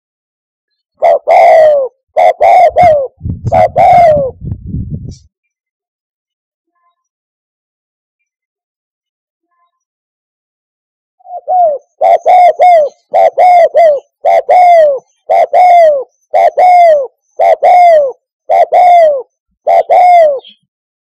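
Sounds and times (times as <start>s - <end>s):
dove cooing: 1.0s - 4.4s, 11.2s - 20.6s.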